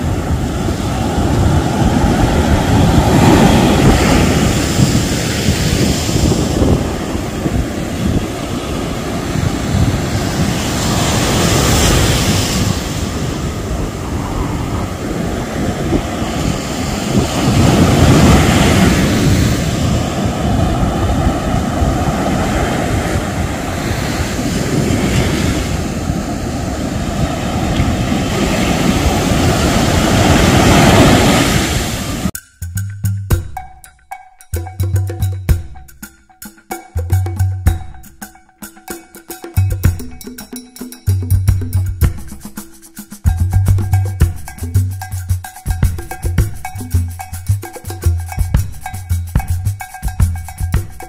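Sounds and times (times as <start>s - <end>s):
wind rumbling on microphone: 0.0s - 32.3s
surf washing up beach: 0.0s - 32.4s.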